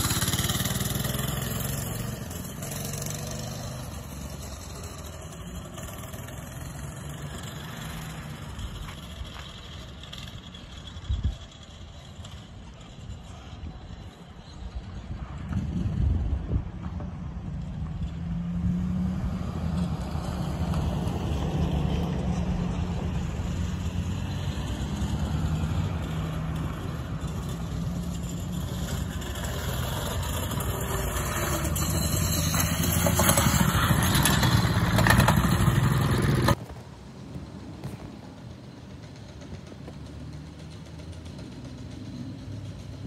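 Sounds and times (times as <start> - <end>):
go-kart engine running: 0.0 - 36.7, 37.3 - 43.0.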